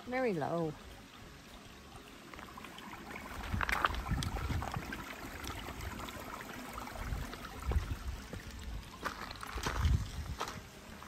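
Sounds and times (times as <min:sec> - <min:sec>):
trickle of shallow river water: 0:00.0 - 0:11.0
footsteps on gravel: 0:08.2 - 0:10.7.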